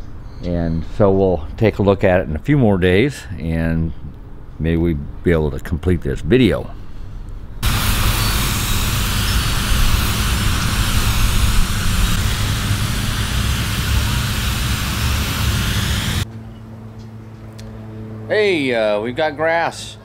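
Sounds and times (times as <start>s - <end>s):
garden hose spraying water: 7.6s - 16.2s.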